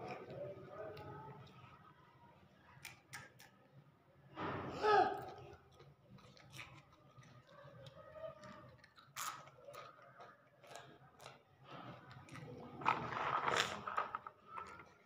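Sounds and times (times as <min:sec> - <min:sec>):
child chewing crunchy snack: 0:00.0 - 0:01.8, 0:05.1 - 0:15.0.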